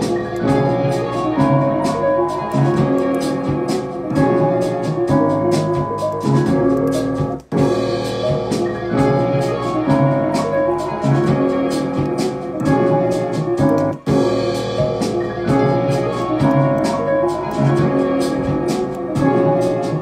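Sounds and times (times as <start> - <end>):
drums: 0.0 - 20.0
keyboard melody: 0.0 - 20.0.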